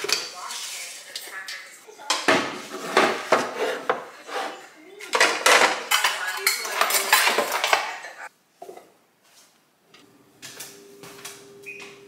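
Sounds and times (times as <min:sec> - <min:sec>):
metal kitchenware clattering: 0:02.0 - 0:08.8.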